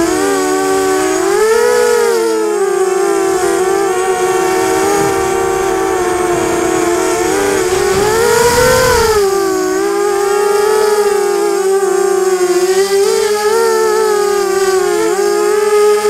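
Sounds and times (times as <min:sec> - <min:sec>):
drone motors whining: 0:00.0 - 0:15.6
low wind rumble: 0:02.9 - 0:11.8.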